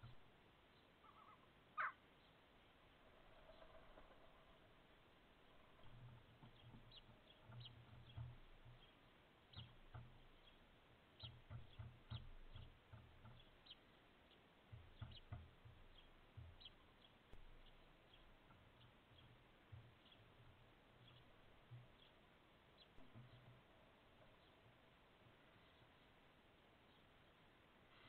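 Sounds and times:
sparrows chirping: 0.0 - 28.0
low thumps: 14.6 - 24.0.

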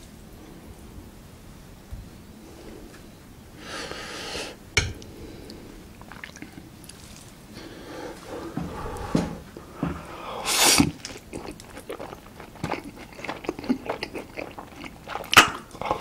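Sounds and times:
wet slurping: 6.0 - 7.2, 10.4 - 16.0
chewing noodles: 6.0 - 7.4, 10.4 - 16.0.

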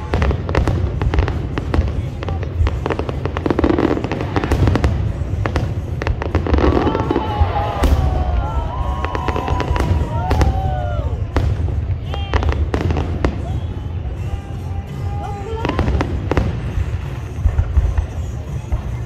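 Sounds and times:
fireworks bangs and crackling: 0.0 - 19.0.

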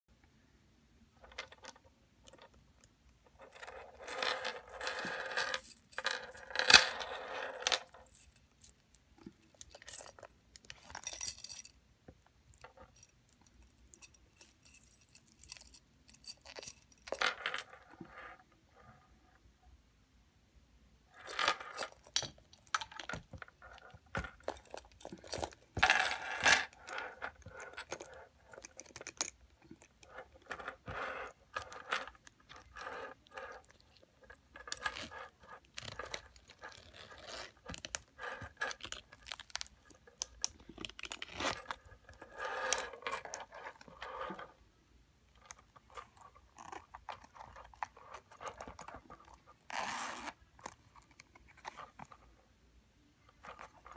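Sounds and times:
metal chain links clinking: 3.4 - 8.7, 9.5 - 11.8, 13.9 - 18.4
zipper opening: 34.7 - 39.4, 40.9 - 44.6, 45.9 - 52.2.

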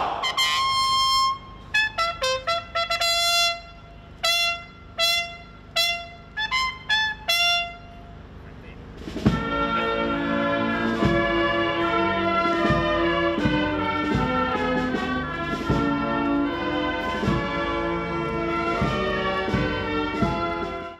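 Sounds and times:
brass band playing a march: 0.0 - 8.2, 8.9 - 20.9
steady drum beat: 8.9 - 20.9.

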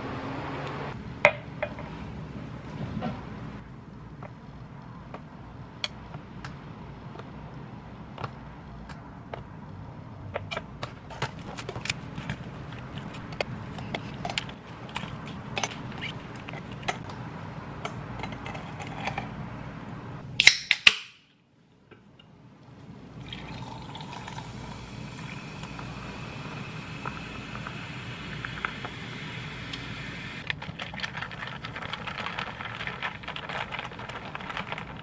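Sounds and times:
fizzy drink poured into glass: 23.2 - 25.7.

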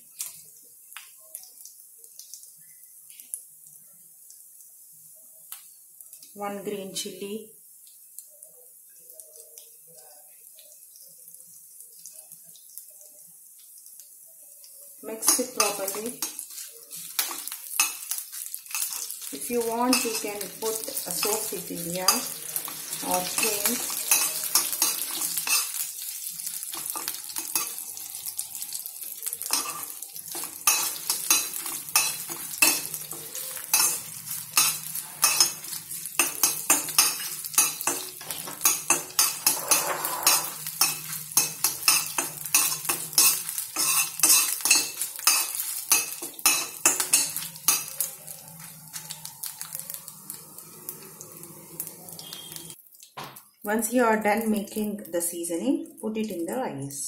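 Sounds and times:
spices sizzling in oil: 0.0 - 56.7
metal spoon scraping pan: 15.2 - 25.8, 29.5 - 49.0.

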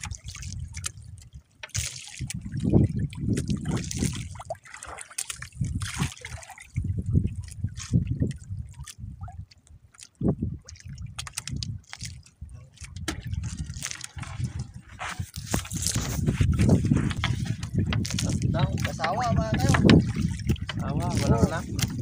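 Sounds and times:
water sloshing and splashing: 0.0 - 22.0
small knocks and clicks: 17.1 - 20.8.

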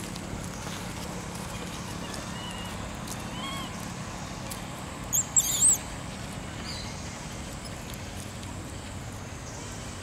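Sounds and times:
outdoor background noise: 0.0 - 10.0
high-pitched chirping animal calls: 5.1 - 5.9.

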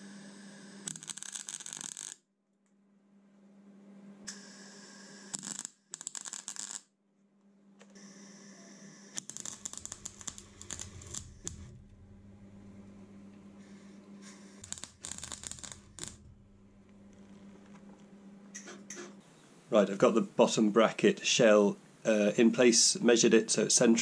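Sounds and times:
welding arc crackling: 0.9 - 2.2, 5.2 - 6.9, 9.2 - 13.1, 14.6 - 18.0.

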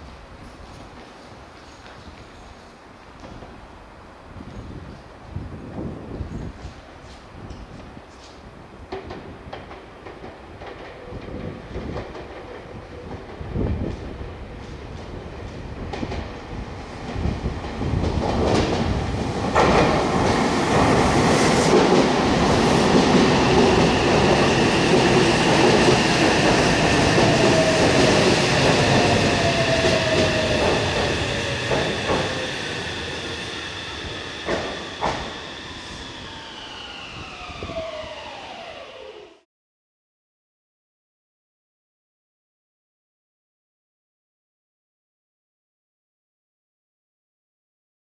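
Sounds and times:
train wheels rumbling on rails: 4.3 - 38.7
train whine falling in pitch: 20.9 - 39.4.

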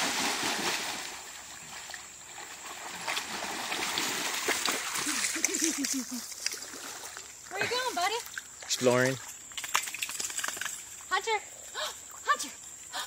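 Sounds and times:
dog splashing through water: 0.0 - 7.4.

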